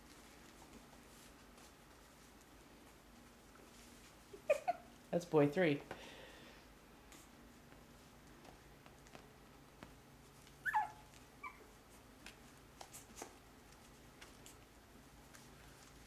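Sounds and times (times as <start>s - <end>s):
puppy yelping: 10.6s - 11.8s.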